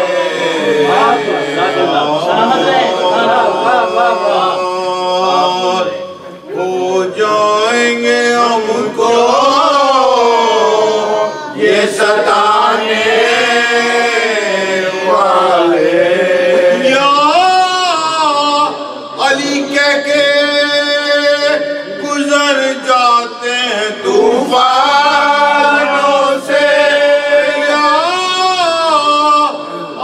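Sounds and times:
men chanting a lament: 0:00.0 - 0:30.0.

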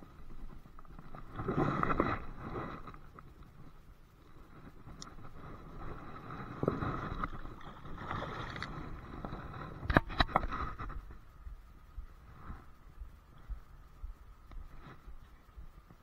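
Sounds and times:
river water splashing: 0:06.9 - 0:09.8.

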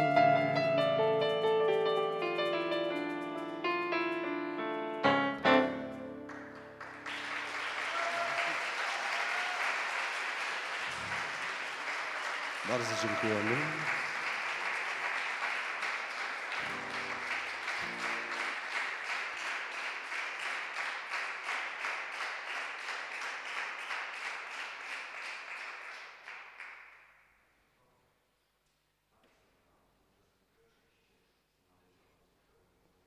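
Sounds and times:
audience applauding: 0:06.2 - 0:27.1.

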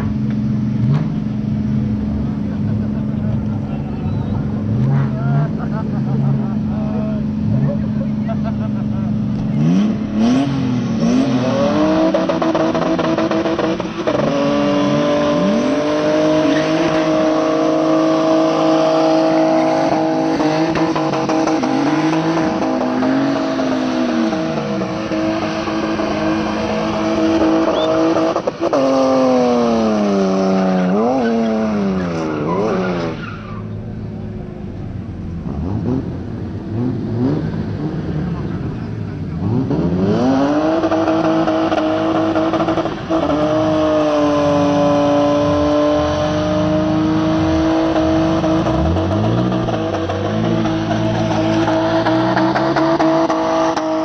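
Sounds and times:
car engine revving: 0:00.0 - 0:54.0
tyres squealing: 0:23.8 - 0:28.5.

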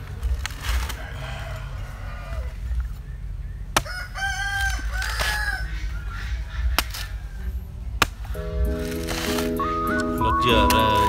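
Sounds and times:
rooster crowing: 0:00.7 - 0:02.9, 0:03.8 - 0:06.2
machete chopping coconut: 0:03.7 - 0:05.7, 0:06.6 - 0:07.4, 0:08.0 - 0:09.6.

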